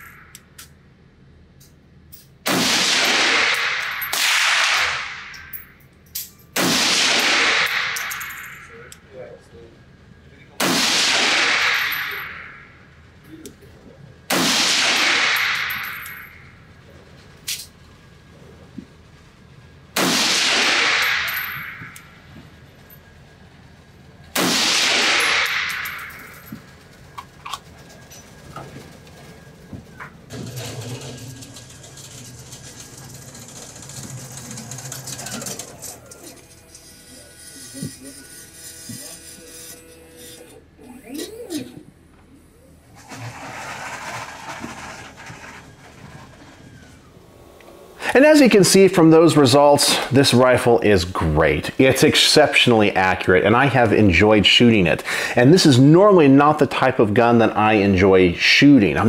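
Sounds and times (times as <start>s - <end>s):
rifle shots ringing indoors: 2.4s - 8.7s, 10.6s - 12.7s, 14.3s - 16.5s, 20.0s - 22.1s, 24.3s - 26.6s.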